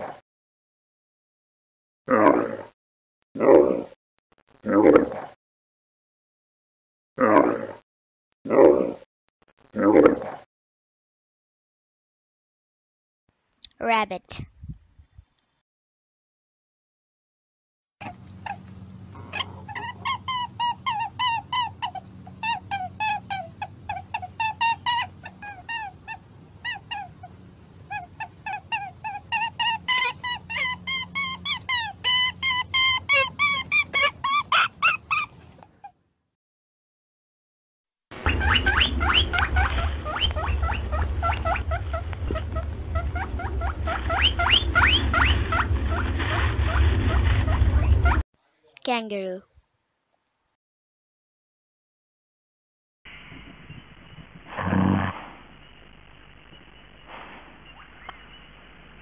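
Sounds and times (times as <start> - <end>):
squeaky animal calls: 18.0 - 35.9, 38.2 - 46.0
high rapid rising squeaks: 38.2 - 48.2
low steady hum: 38.3 - 48.2
low steady rumble: 38.3 - 48.2.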